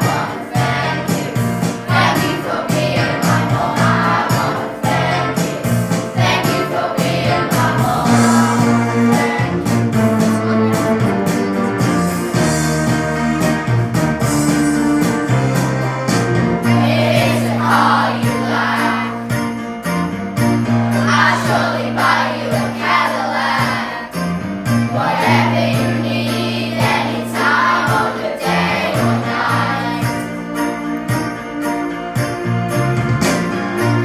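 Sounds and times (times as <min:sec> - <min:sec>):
voices singing: 0:00.0 - 0:09.8, 0:16.6 - 0:19.3, 0:20.9 - 0:24.2, 0:24.9 - 0:30.3
bass notes: 0:00.0 - 0:34.0.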